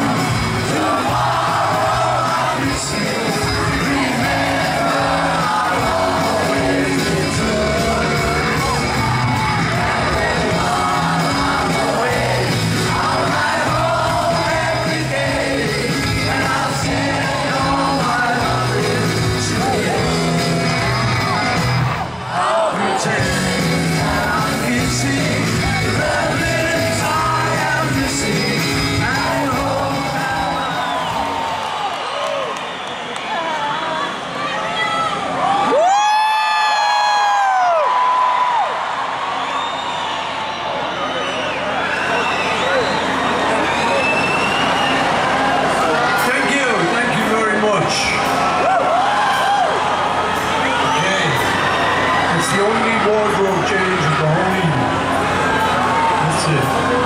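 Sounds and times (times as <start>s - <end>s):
man singing lead vocals: 0.0s - 21.4s, 22.4s - 31.1s
rock band playing: 0.0s - 22.2s, 22.8s - 31.6s, 44.1s - 57.0s
crowd yelling: 0.0s - 57.0s.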